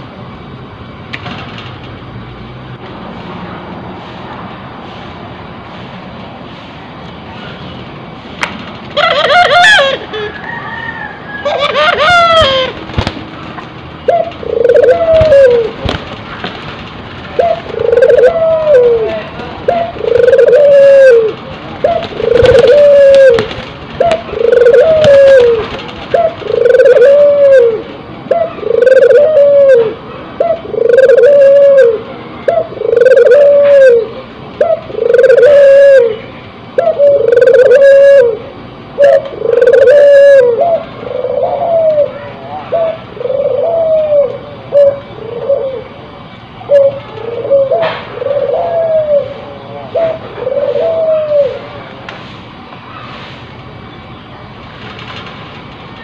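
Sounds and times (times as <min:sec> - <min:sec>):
dove cooing: 0:08.9 - 0:13.0, 0:14.0 - 0:16.4, 0:17.2 - 0:51.9.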